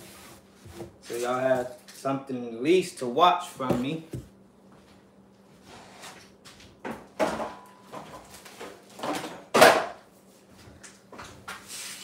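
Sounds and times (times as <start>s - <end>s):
kitchen knocks and rustles: 6.4s - 10.0s.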